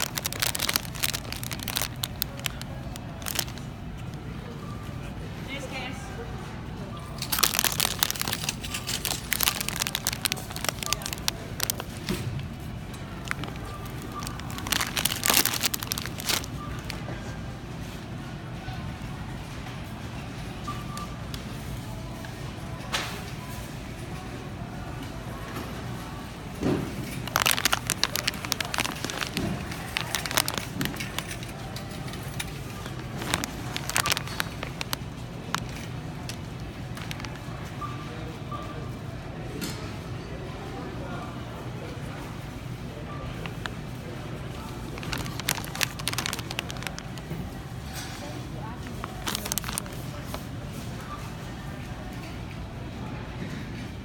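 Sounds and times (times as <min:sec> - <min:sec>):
cellophane bags crinkling: 0:00.0 - 0:04.1, 0:07.2 - 0:17.0, 0:27.0 - 0:37.5, 0:44.5 - 0:47.6, 0:48.7 - 0:50.4.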